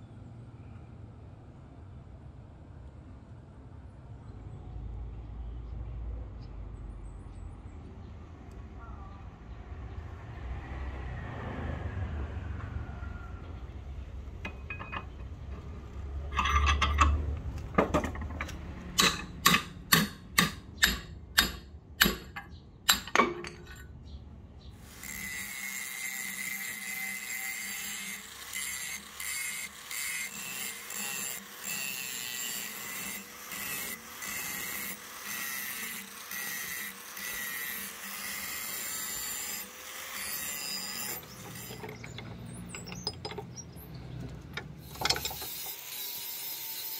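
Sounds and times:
angle grinder grinding metal: 24.8 - 44.0, 44.8 - 46.9.

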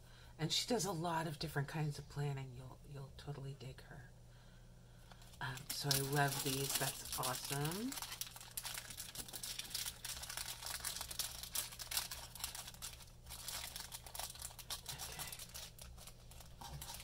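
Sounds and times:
steady low hum: 0.0 - 17.0
plastic bag crinkling: 5.1 - 17.0.

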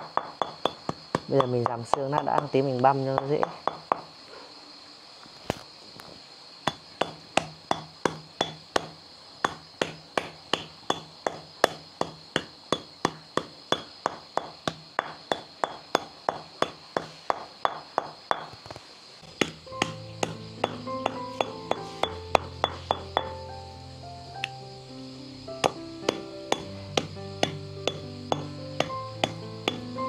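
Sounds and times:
glass bottle pounding meat and bones: 0.0 - 2.6, 6.7 - 18.6, 19.4 - 23.4, 25.6 - 29.9.

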